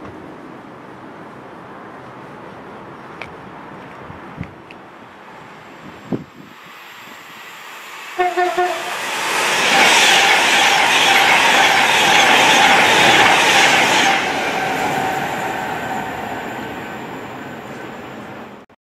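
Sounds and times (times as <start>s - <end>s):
train passing at speed: 0.1s - 18.6s
train horn toot: 8.2s - 9.0s.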